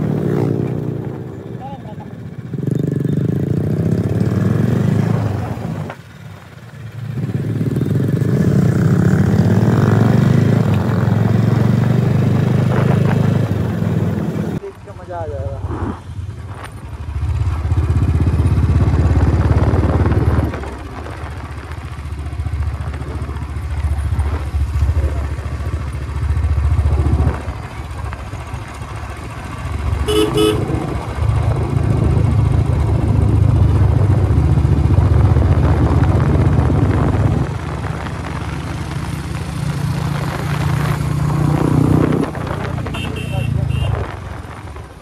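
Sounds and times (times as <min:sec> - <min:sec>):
motorcycle engine running: 0:00.0 - 0:45.0
short horn beep: 0:30.1 - 0:30.7.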